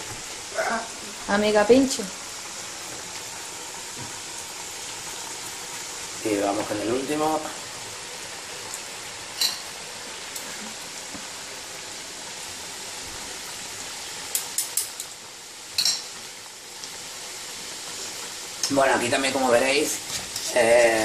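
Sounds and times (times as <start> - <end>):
food sizzling in hot oil: 0.0 - 21.0
metal spoon clinking on pan: 9.4 - 9.7, 14.3 - 15.1, 15.7 - 16.1.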